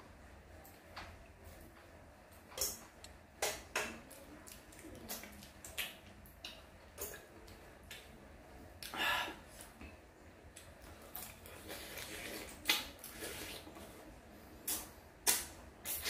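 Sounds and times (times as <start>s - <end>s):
slurp: 11.2s - 14.0s, 14.7s - 16.0s
wet lip smacks and sucks: 14.7s - 16.0s.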